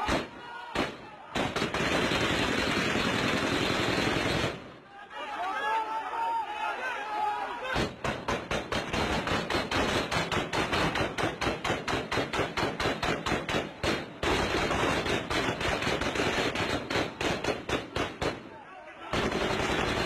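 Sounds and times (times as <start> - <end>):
heavy automatic gunfire: 0.8 - 4.6, 7.8 - 18.4, 19.1 - 20.0.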